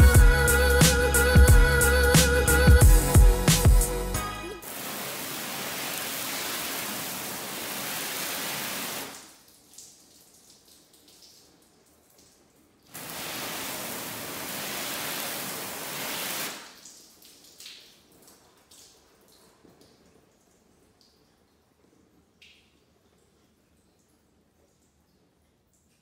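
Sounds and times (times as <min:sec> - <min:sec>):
water spray hissing on car hood: 0:04.6 - 0:09.3, 0:12.9 - 0:16.8.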